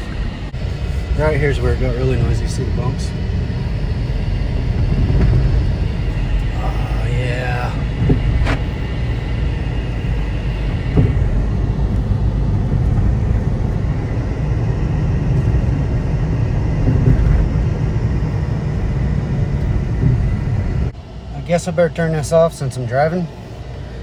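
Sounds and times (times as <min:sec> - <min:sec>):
road and tyre rumble in car: 0:00.0 - 0:24.0
car suspension bump: 0:04.7 - 0:06.6, 0:07.8 - 0:14.1, 0:16.7 - 0:20.9.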